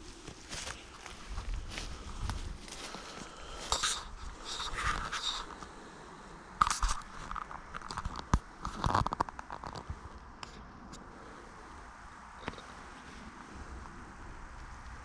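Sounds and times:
footsteps crunching dry leaves: 0.0s - 5.5s.

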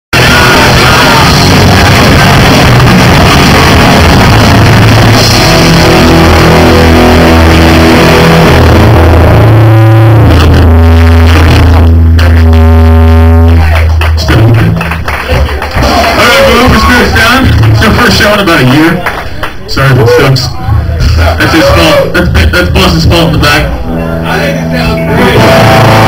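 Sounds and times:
punk band playing: 0.1s - 26.0s.

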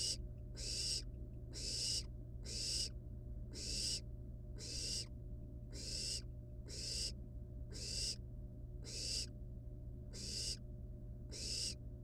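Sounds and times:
owl chick rasping begging call: 0.0s - 2.9s, 3.5s - 4.0s, 4.6s - 5.1s, 5.7s - 8.2s, 8.8s - 9.3s, 10.1s - 10.6s, 11.3s - 11.8s
steady low hum: 0.0s - 12.0s.

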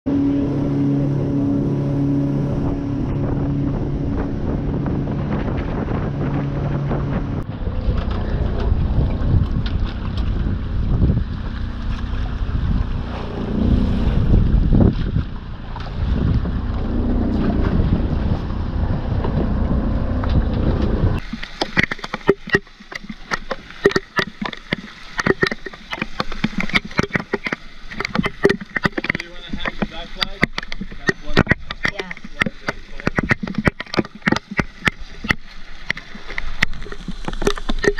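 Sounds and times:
motorboat engine hum: 0.0s - 37.9s
rushing water: 0.1s - 37.9s
wind on microphone: 0.1s - 37.9s
gear knocking and clicking: 20.2s - 37.9s
small water slaps: 20.2s - 37.9s.

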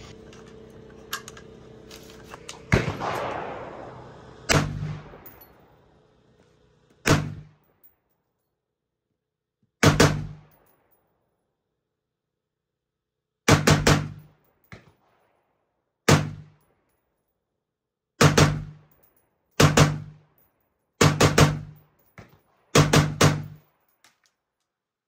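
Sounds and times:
gunshots: 2.6s - 5.4s, 7.0s - 7.6s, 9.8s - 10.5s, 13.5s - 14.2s, 16.1s - 16.6s, 18.2s - 18.8s, 19.6s - 20.2s, 21.0s - 21.8s, 22.7s - 23.6s.

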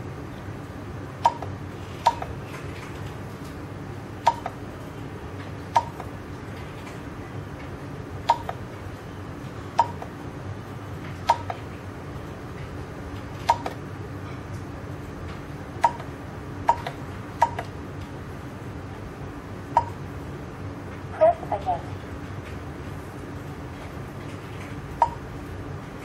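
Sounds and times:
low background hum: 0.0s - 26.0s
keypad beeps: 1.2s - 2.3s, 4.2s - 4.6s, 5.7s - 6.1s, 8.2s - 8.6s, 9.8s - 10.1s, 11.3s - 11.6s, 13.5s - 13.8s, 15.8s - 16.1s, 16.7s - 17.7s, 19.8s - 20.0s, 25.0s - 25.2s.

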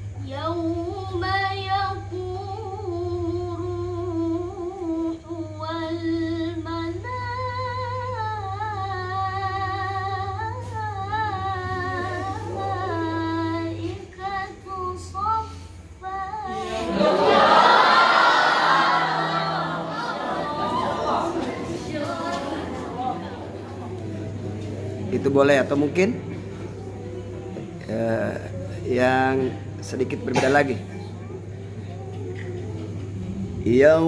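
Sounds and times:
woman reciting melodically: 0.0s - 25.0s
steady low hum: 0.0s - 34.0s
group reciting together: 9.8s - 34.0s.

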